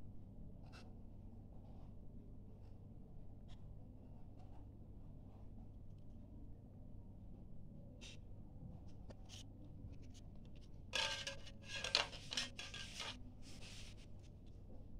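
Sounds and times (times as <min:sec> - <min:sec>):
plastic card scraping on plastic: 0:11.0 - 0:14.0.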